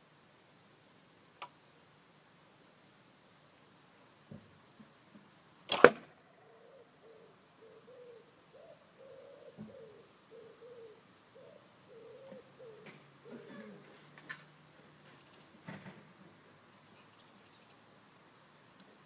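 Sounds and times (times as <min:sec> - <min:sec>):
arrow striking foam target: 0:05.7 - 0:06.1.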